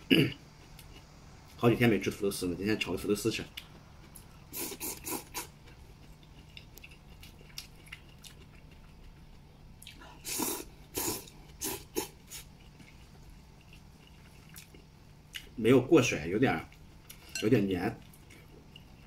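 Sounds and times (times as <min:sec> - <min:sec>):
quiet chewing: 0:00.4 - 0:01.6, 0:03.4 - 0:15.6, 0:16.6 - 0:17.4, 0:18.0 - 0:19.0
man slurping noodles: 0:04.5 - 0:05.5, 0:10.2 - 0:12.4.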